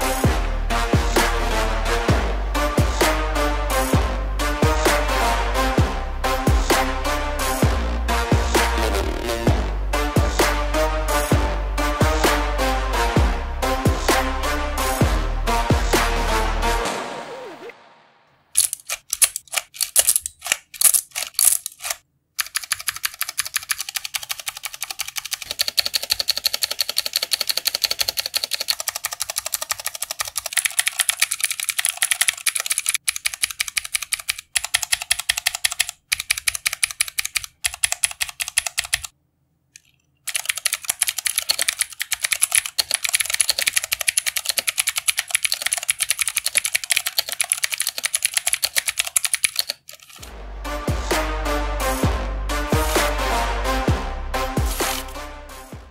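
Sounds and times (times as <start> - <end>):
mechanical keyboard typing clicks: 18.6 - 39.1, 39.8 - 50.2.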